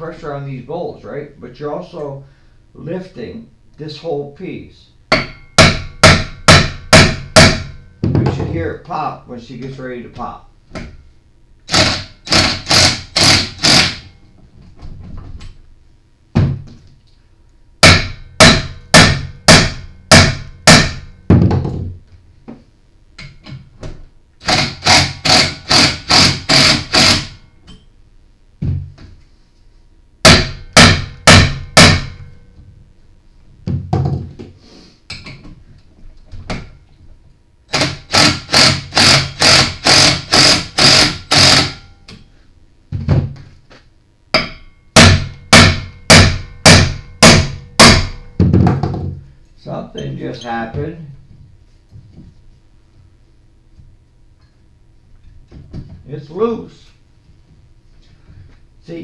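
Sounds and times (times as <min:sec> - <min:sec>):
hammer striking metal bolt: 0:05.1 - 0:07.8, 0:17.8 - 0:21.1, 0:30.3 - 0:32.3, 0:44.4 - 0:48.3.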